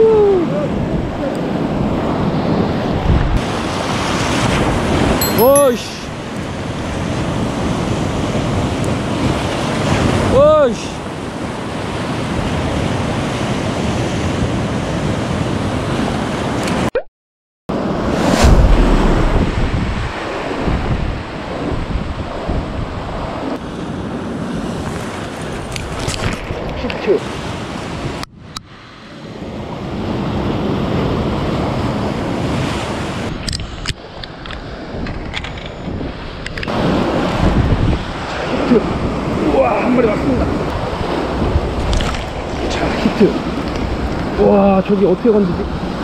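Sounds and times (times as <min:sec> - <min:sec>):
wind on microphone: 0:00.0 - 0:05.2, 0:17.8 - 0:44.5
surf breaking over rocks: 0:17.8 - 0:21.4.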